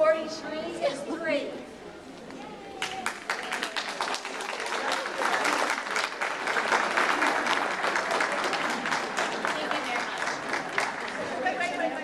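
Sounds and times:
audience applauding: 2.8s - 11.8s.

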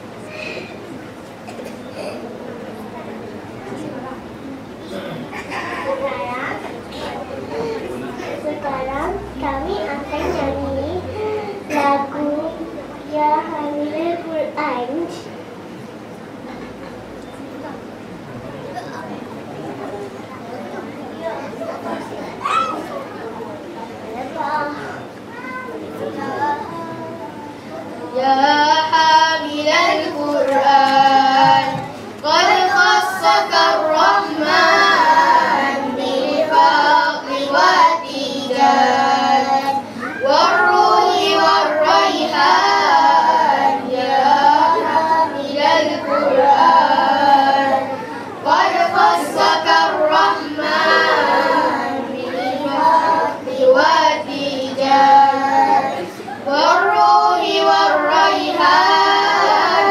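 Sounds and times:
children singing into microphones: 6.7s - 15.2s, 26.0s - 59.9s.

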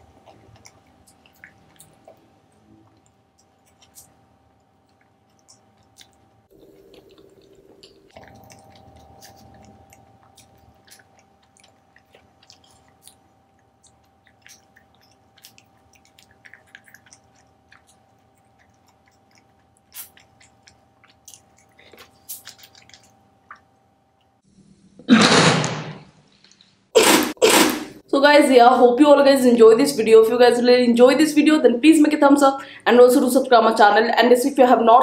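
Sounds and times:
chewing mouth clicks and smacks: 0.0s - 24.3s.

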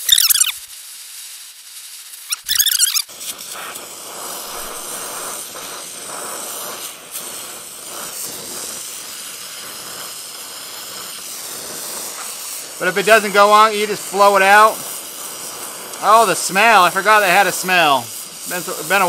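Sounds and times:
high squeal: 0.0s - 0.6s, 2.3s - 3.1s
torch flame hissing: 0.0s - 19.0s.

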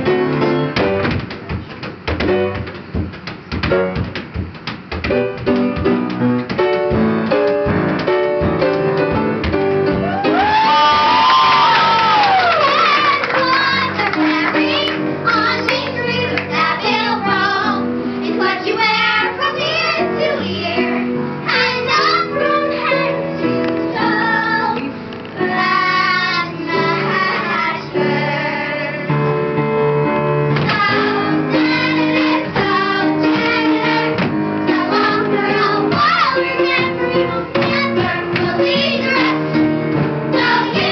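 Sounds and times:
instrumental accompaniment: 0.0s - 40.9s
children singing: 12.6s - 23.2s, 23.9s - 29.1s, 30.7s - 40.9s.

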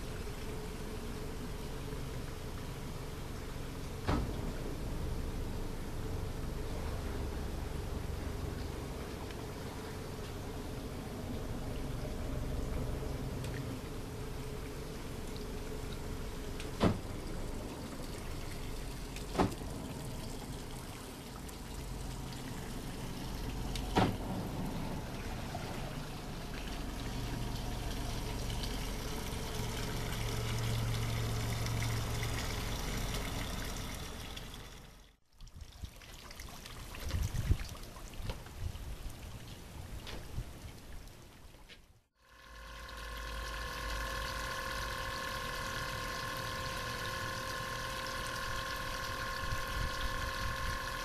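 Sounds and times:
low steady hum: 0.0s - 51.0s
water lapping around boat hull: 6.1s - 42.0s.

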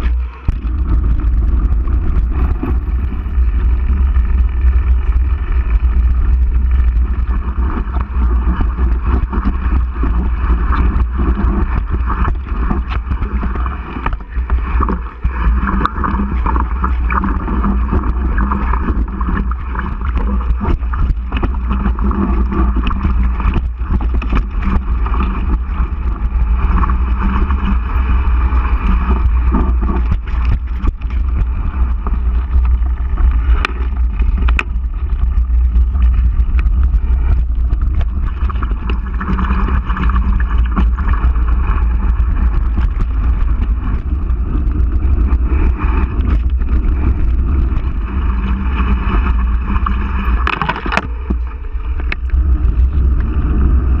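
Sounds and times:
bike rattling over bumps: 0.0s - 54.0s
bike tyre noise: 0.0s - 54.0s
wind rumble on microphone: 0.0s - 54.0s.

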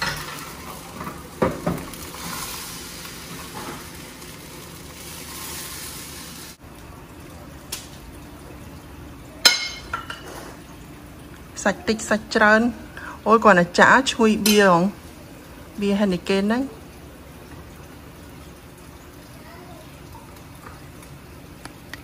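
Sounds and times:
batter sizzling in frying pan: 0.0s - 13.4s.

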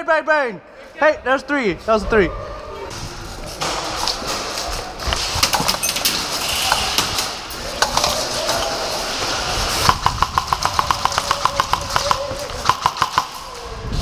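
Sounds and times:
airsoft guns firing: 9.8s - 13.6s.

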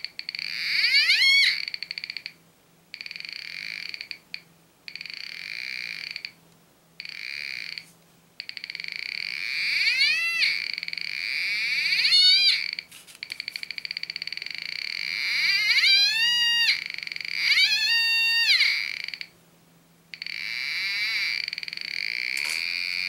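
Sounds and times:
metal detector buzzy tone: 0.0s - 2.3s, 7.0s - 19.3s, 20.2s - 23.0s.

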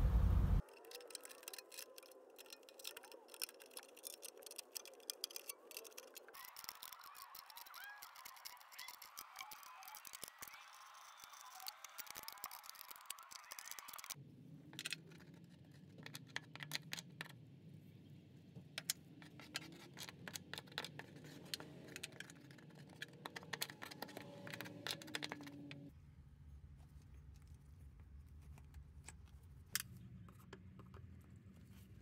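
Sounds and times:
steady low hum: 0.0s - 0.6s.

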